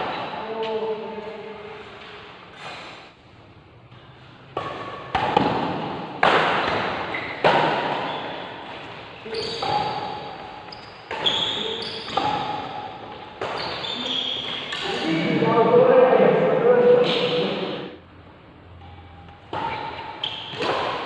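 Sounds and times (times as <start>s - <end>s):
rackets hitting shuttlecock: 4.0s - 15.0s, 19.4s - 21.0s.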